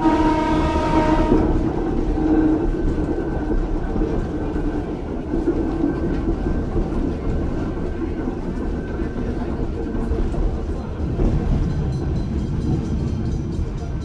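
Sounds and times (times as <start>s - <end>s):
train horn: 0.0s - 2.4s
railcar rumble and hum: 0.0s - 14.0s.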